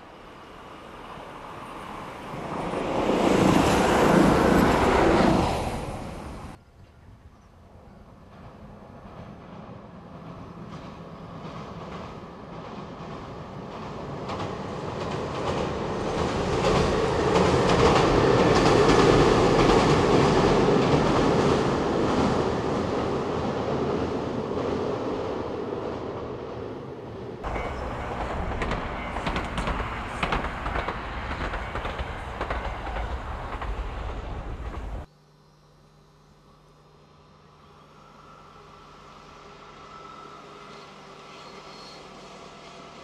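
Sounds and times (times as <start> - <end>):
train running on track: 0.0 - 35.1, 36.9 - 43.0
train wheels rumbling on bridge: 8.0 - 26.7, 27.4 - 35.1.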